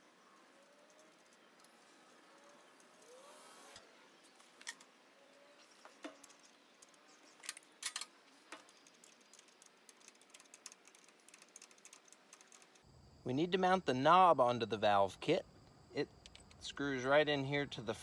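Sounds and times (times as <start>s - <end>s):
metallic clicks of bolts: 6.0s - 12.8s.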